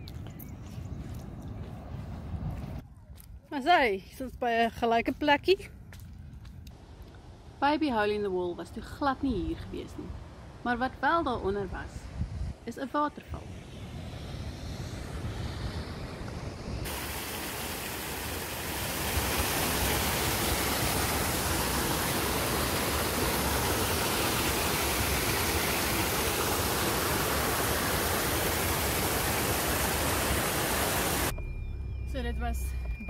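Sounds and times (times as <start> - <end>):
waterfall rushing over rocks: 16.9 - 31.3.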